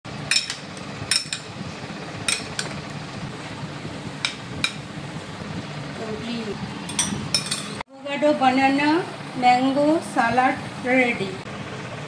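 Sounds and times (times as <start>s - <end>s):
steady low hum: 0.1s - 12.0s
metal spoon clinking on ceramic bowl: 6.9s - 7.8s.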